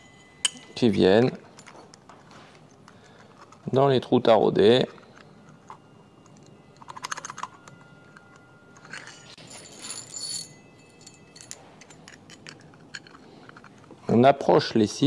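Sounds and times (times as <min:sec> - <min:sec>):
metal screws clinking against metal: 0:00.0 - 0:02.2, 0:04.6 - 0:14.0
high metallic rings: 0:00.0 - 0:14.1.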